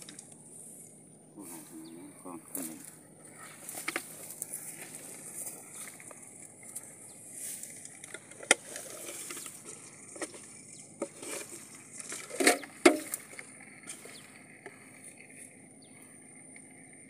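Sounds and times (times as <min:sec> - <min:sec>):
steady high hiss: 0:00.0 - 0:10.6
grass rustling: 0:00.0 - 0:16.1.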